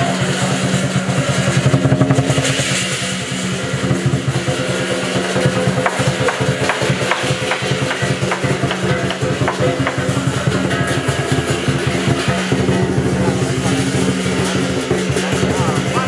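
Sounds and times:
fast rolling drum beats: 0:00.0 - 0:16.0
sharp cymbal crashes: 0:00.0 - 0:16.0
steady held tones: 0:05.2 - 0:16.0.

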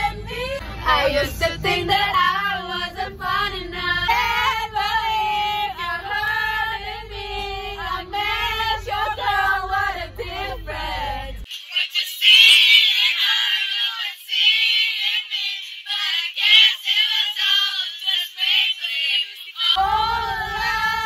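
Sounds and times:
minibus low rumble: 0:00.0 - 0:11.5, 0:19.8 - 0:21.0
girls singing loudly together: 0:00.0 - 0:21.0.

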